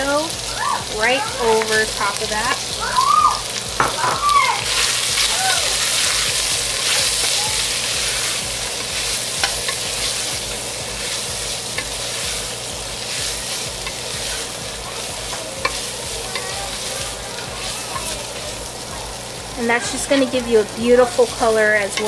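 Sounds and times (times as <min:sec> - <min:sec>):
meat sizzling in hot oil: 0:00.0 - 0:22.0
wooden spoon scraping a pot: 0:15.2 - 0:16.9.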